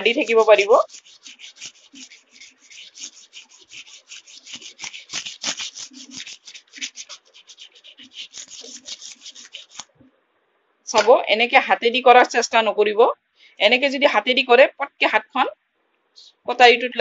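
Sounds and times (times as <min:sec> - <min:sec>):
sandpaper scraping knife blade: 0:00.0 - 0:09.9.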